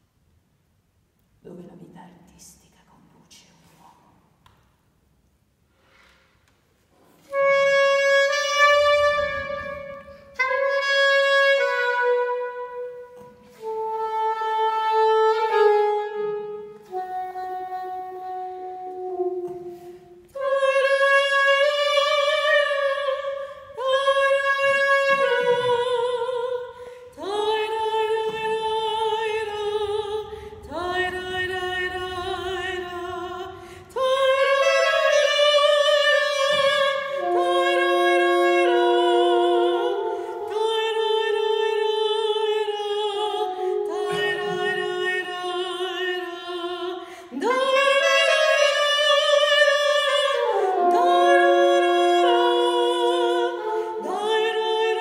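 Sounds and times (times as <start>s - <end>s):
solo saxophone melody: 7.1s - 55.0s
soprano voice singing: 20.3s - 55.0s.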